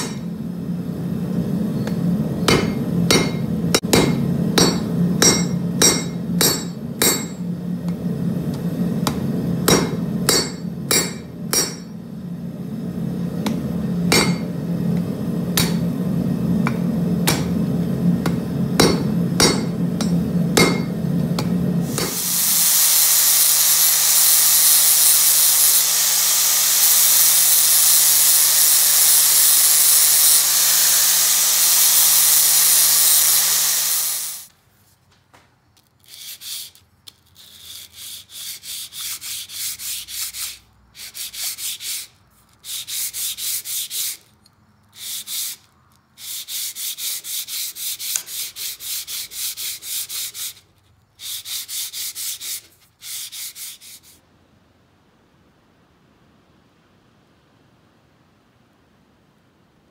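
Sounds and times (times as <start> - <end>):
hammer striking steel on anvil: 0.0 - 0.4, 1.8 - 7.5, 9.0 - 12.0, 13.4 - 14.5, 15.6 - 15.9, 16.6 - 17.6, 18.2 - 22.2.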